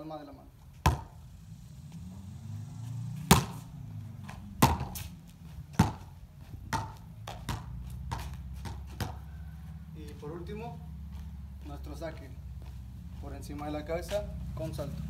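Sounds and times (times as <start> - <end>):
ball bouncing on concrete: 0.7 - 1.2, 3.2 - 9.4
hand slapping volleyball: 3.3 - 3.6, 4.2 - 5.1, 5.8 - 6.1, 6.7 - 9.2.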